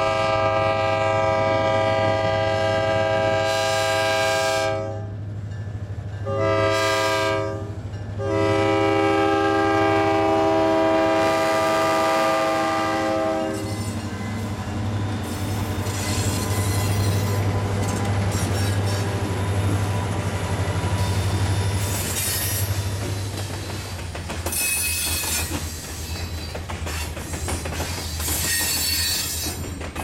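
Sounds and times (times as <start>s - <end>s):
locomotive air horn: 0.0s - 5.1s, 6.3s - 13.8s
rail wheel clatter: 5.2s - 30.0s
faint high wheel squeal: 24.5s - 29.8s.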